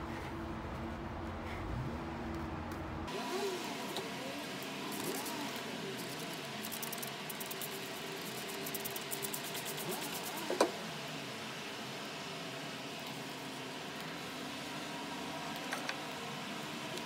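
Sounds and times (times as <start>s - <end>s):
spray bottle squirting: 6.6s - 10.4s.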